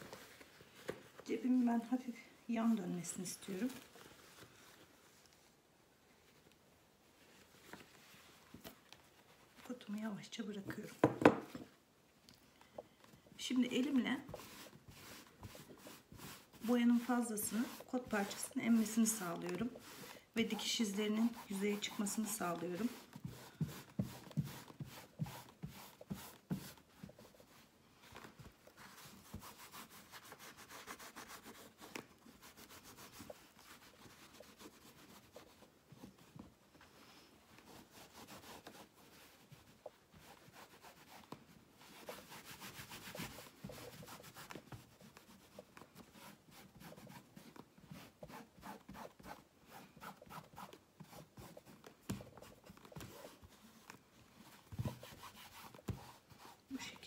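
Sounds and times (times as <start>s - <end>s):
hands rubbing fabric: 13.5s - 57.0s.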